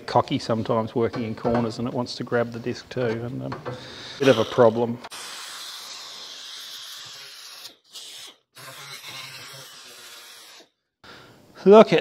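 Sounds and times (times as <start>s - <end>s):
pneumatic sander on metal: 5.1s - 10.7s.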